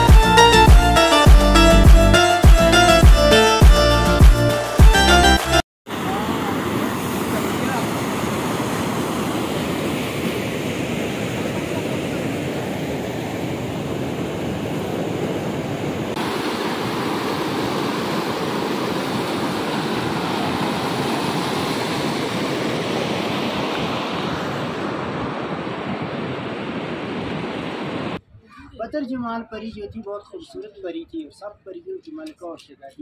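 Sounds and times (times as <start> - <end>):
stream rushing over rocks: 5.9 - 28.2.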